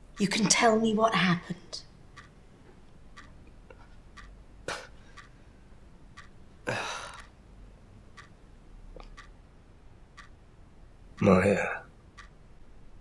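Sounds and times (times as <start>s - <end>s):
clock ticking: 0.0s - 13.0s.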